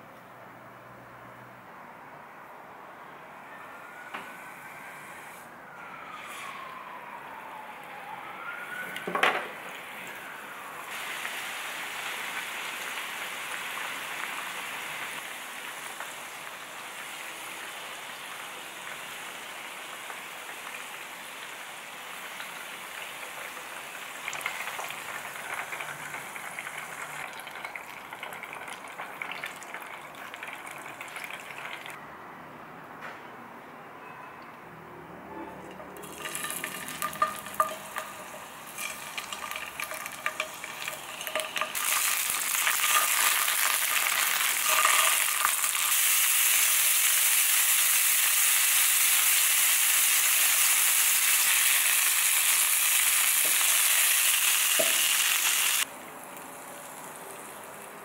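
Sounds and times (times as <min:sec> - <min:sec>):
fries sizzling in oil: 0:08.2 - 0:32.0, 0:36.0 - 0:58.0
faint whistling tone: 0:34.0 - 0:34.5.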